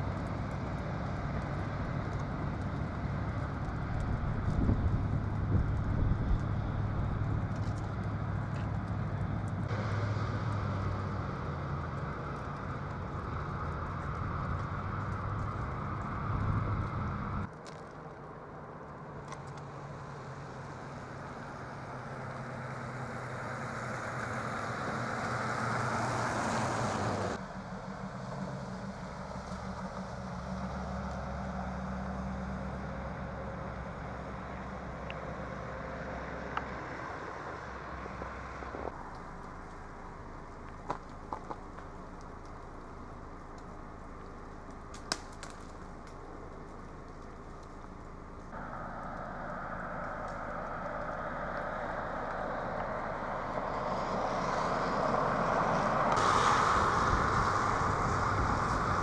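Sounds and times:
idling motor vehicle hum: 0:00.0 - 0:59.0
outdoor hiss: 0:41.8 - 0:59.0.

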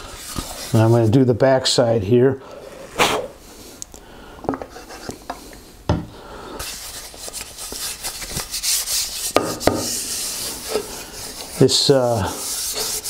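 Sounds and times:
hand rubbing wood: 0:06.6 - 0:13.0.

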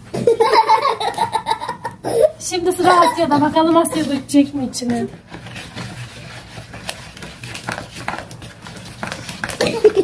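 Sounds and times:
child giggling: 0:00.2 - 0:04.1, 0:09.6 - 0:10.0
whisk stirring batter in bowl: 0:02.6 - 0:10.0.

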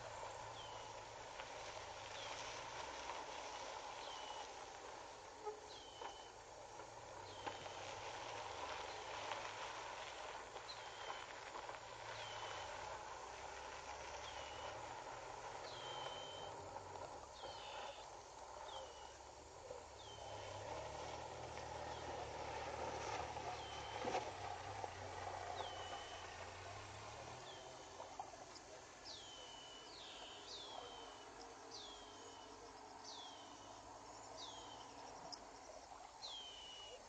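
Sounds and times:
bird calling: 0:15.6 - 0:16.6.

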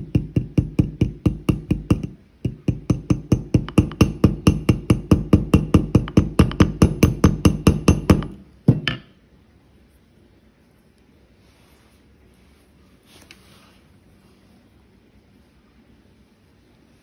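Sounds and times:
hammer tapping metal pin: 0:00.0 - 0:09.2.

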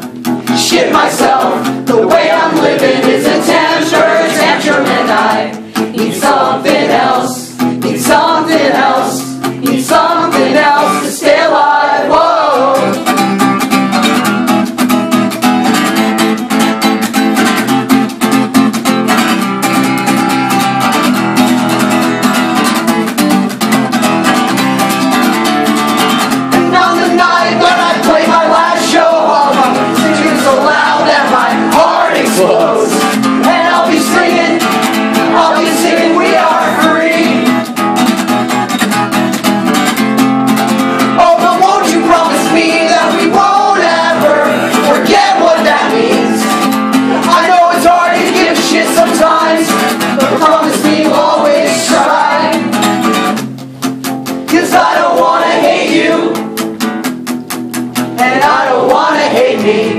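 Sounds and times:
acoustic guitar strumming: 0:00.0 - 0:59.9
person singing: 0:00.5 - 0:13.1, 0:26.6 - 0:37.6, 0:41.1 - 0:52.7, 0:54.5 - 0:56.4, 0:58.2 - 0:59.9.

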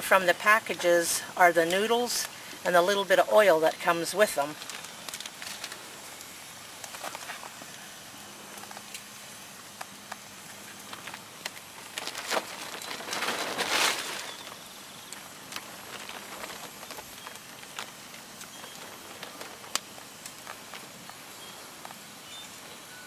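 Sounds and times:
campfire crackling and popping: 0:03.8 - 0:07.9, 0:08.5 - 0:22.1.

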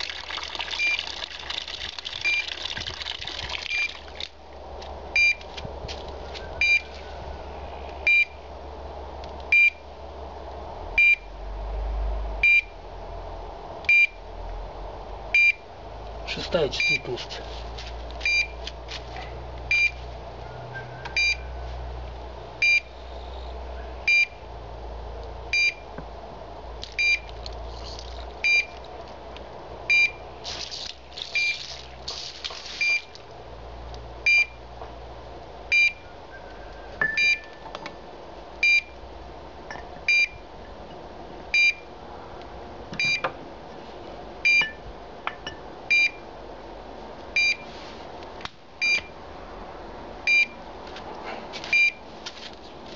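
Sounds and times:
rustling noise: 0:04.8 - 0:07.4, 0:17.2 - 0:20.2, 0:47.6 - 0:48.2, 0:50.8 - 0:52.9
locator beeping: 0:05.2 - 0:05.4, 0:06.5 - 0:06.9, 0:08.1 - 0:08.4, 0:20.7 - 0:21.5, 0:35.7 - 0:37.7, 0:40.1 - 0:40.4, 0:43.0 - 0:43.3, 0:44.4 - 0:44.8, 0:45.9 - 0:46.2, 0:47.4 - 0:47.6, 0:50.3 - 0:50.6.

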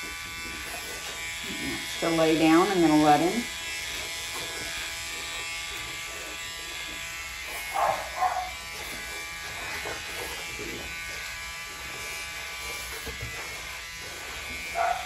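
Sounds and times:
nail grinder buzzing: 0:00.0 - 0:15.0
dog crying: 0:07.8 - 0:08.6, 0:14.7 - 0:15.0.

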